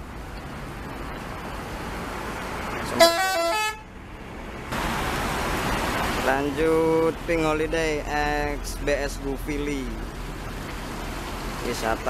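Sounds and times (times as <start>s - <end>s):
bus engines and traffic: 0.0s - 12.0s
multi-tone bus horn: 2.9s - 3.9s.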